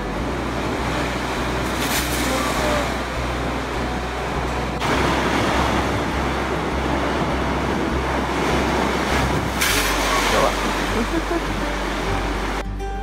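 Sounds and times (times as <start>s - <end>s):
sea surf crashing on rocks: 0.0s - 12.6s.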